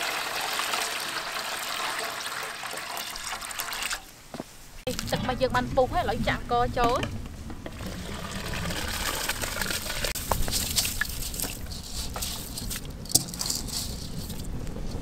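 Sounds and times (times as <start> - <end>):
rice poured into water: 0.0 - 4.0, 7.8 - 14.0
water sloshing and trickling: 0.0 - 4.1, 4.8 - 15.0.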